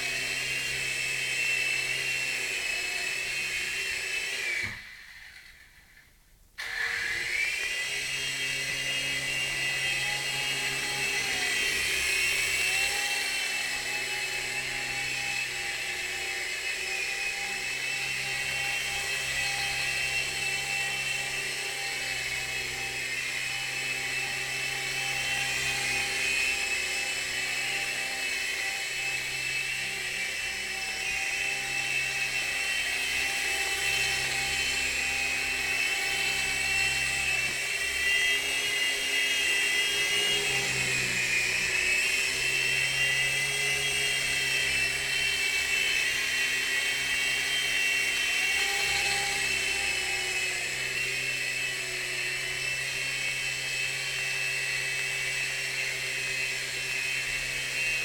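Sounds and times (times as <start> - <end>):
toy helicopter motor whine: 0.0 - 58.0.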